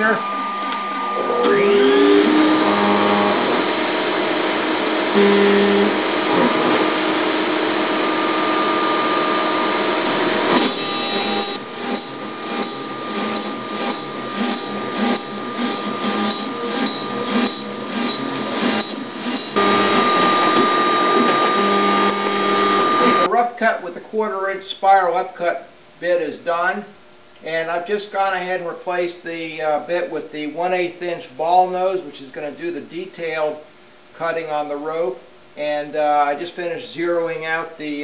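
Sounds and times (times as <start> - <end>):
router cutting wood: 0.0 - 23.3
shop vacuum running: 0.0 - 23.3.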